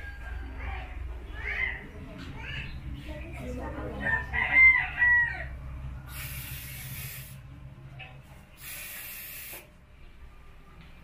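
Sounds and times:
aerosol spray hissing: 6.1s - 7.4s, 8.6s - 9.7s.

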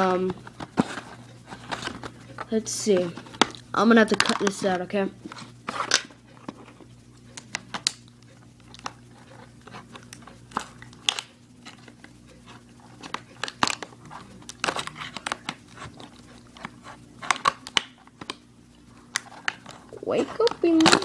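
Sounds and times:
packaging crinkling: 12.8s - 21.0s
scissors snipping packaging: 19.1s - 21.0s.

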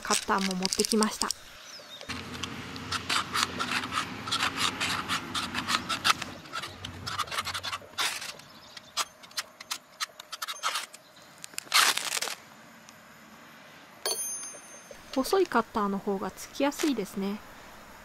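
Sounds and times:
blade scraping fire-starter rod: 2.1s - 11.0s.

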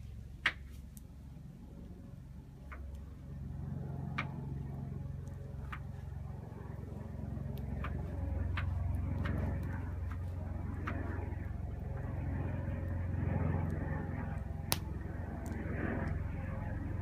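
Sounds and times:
low rumble: 1.1s - 17.0s
campfire crackling and popping: 2.6s - 16.2s.

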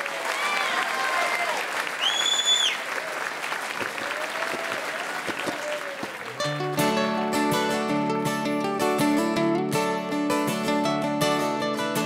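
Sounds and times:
audience applauding: 0.0s - 6.8s
people cheering: 0.0s - 6.8s
shrill whistle: 2.0s - 2.8s
acoustic guitar strumming: 6.3s - 12.0s
ukulele strumming: 6.3s - 12.0s.

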